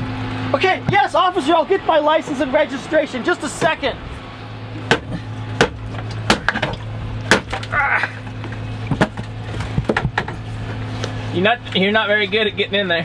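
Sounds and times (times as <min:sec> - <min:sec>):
pry bar knocking and cracking: 0:04.9 - 0:07.8.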